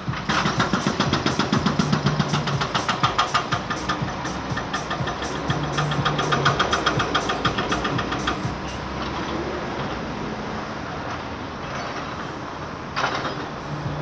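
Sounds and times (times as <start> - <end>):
fast regular ticking: 0.0 - 8.9
steady traffic noise: 0.0 - 14.0.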